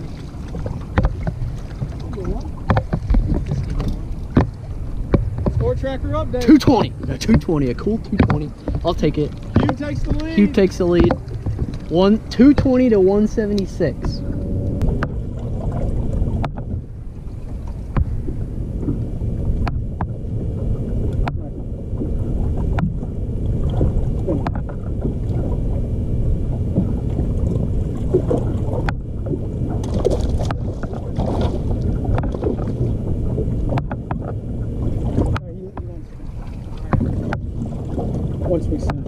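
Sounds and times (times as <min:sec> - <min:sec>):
wind buffeting microphone: 0:00.0 - 0:39.0
sharp clicks and knocks: 0:00.6 - 0:01.9, 0:02.6 - 0:05.8, 0:06.6 - 0:15.2, 0:21.1 - 0:21.4, 0:33.7 - 0:34.4.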